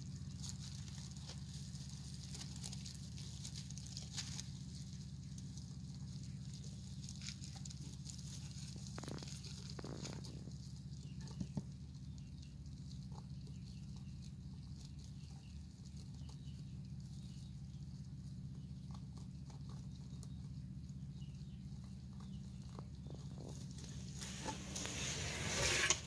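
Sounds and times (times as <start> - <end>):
rustling in dry hay: 0.0 - 18.5, 22.6 - 26.0
steady low hum: 0.0 - 26.0
small scratching taps: 22.7 - 26.0.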